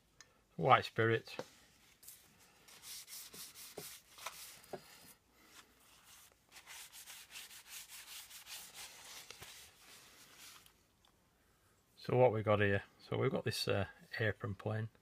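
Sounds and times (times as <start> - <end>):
paper towel wiping metal: 2.1 - 4.8, 5.8 - 10.7.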